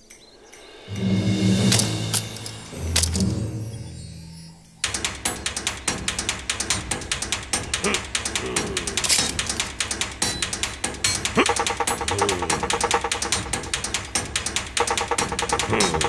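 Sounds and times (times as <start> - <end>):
rapid ratchet-like clicks: 4.8 - 16.0.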